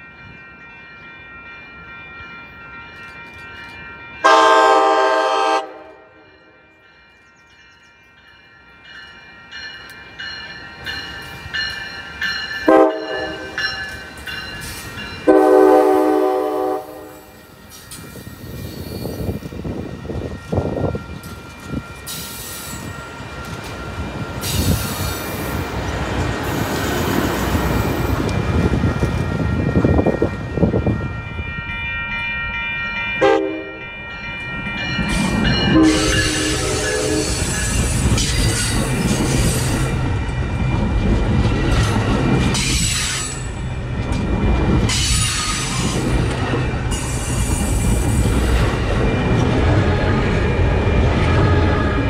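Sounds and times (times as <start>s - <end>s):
train rumbling past: 0.0s - 52.0s
train horn: 4.2s - 6.4s, 12.6s - 13.6s, 15.2s - 17.3s, 33.2s - 33.8s, 35.7s - 37.5s.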